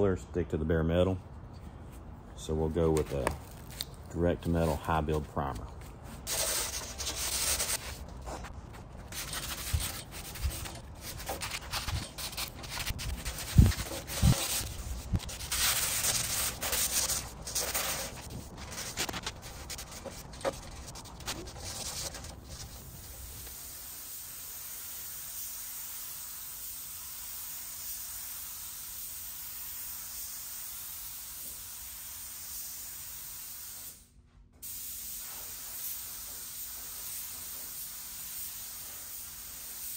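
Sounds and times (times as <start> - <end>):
sandpaper scratching metal: 6.2 - 23.4
steady hiss: 20.8 - 39.9.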